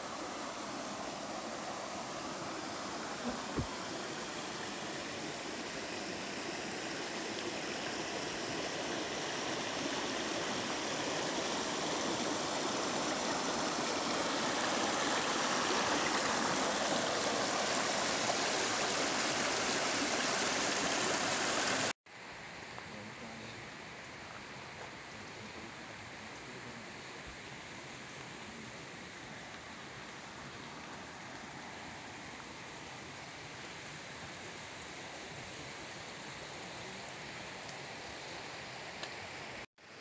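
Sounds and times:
water splashing over stones: 0.0s - 21.9s
quiet hiss: 0.0s - 40.0s.

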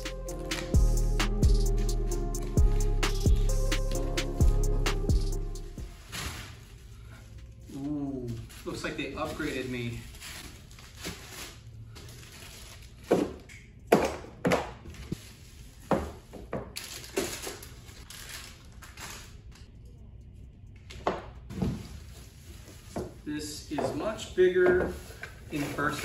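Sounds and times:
plastic packaging crinkling: 5.8s - 13.5s, 14.9s - 19.7s, 21.5s - 23.3s, 24.0s - 26.0s.

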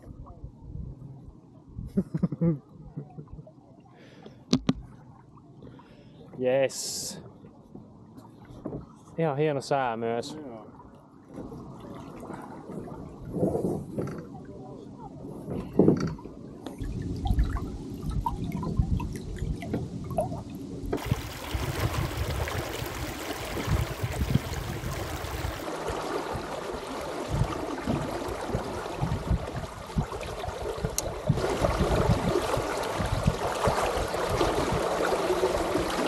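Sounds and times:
wind rumble on microphone: 0.0s - 3.4s, 11.3s - 36.0s
water splashing along boat hull: 15.5s - 36.0s.

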